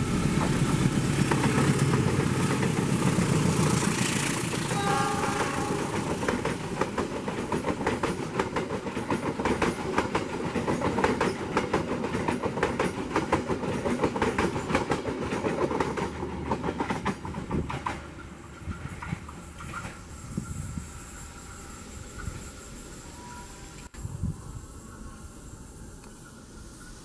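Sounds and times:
train rumble: 0.0s - 21.4s
train wheels clattering over rail joints: 0.1s - 4.7s, 6.2s - 20.0s.

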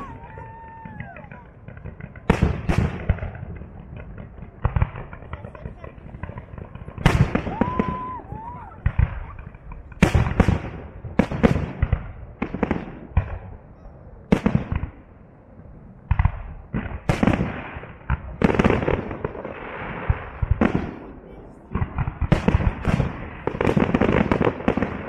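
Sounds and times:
fireworks booming with echo: 0.0s - 15.2s, 15.8s - 25.0s.

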